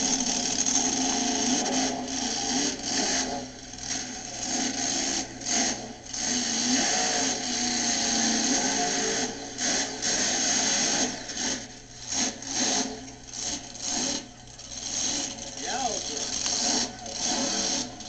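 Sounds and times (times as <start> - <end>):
truck engine revving: 0.0 - 18.0.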